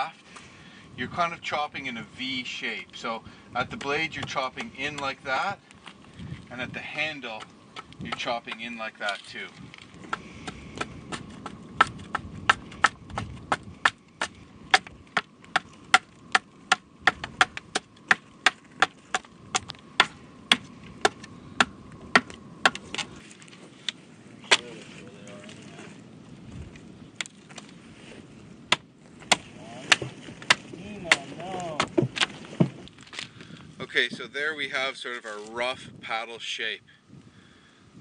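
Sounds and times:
knife chopping wood: 7.4 - 8.7, 10.1 - 23.1, 28.7 - 32.8.

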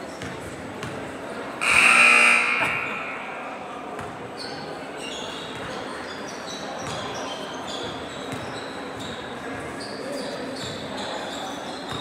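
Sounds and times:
sneakers squeaking on court: 0.0 - 1.1, 3.8 - 12.0
hubbub of gym hall: 0.0 - 12.0.

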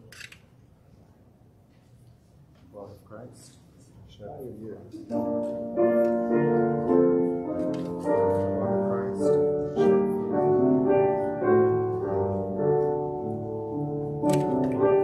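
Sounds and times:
slow soft instrumental music: 5.0 - 15.0.

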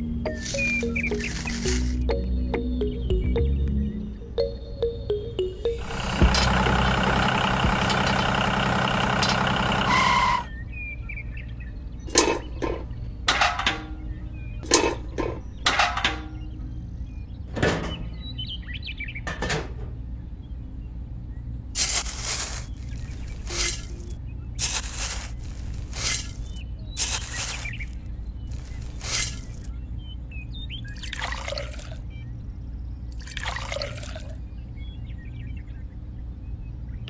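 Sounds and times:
background music: 0.0 - 6.8
small shovel scraping sand: 21.8 - 29.7.

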